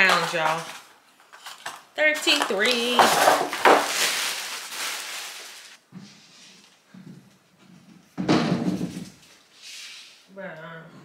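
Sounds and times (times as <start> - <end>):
hissy rustle of packaging: 0.1 - 6.8, 9.2 - 10.3.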